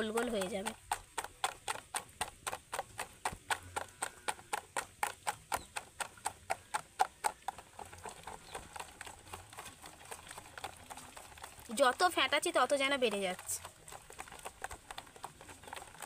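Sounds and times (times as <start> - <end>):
hand beating batter: 0.0 - 10.7.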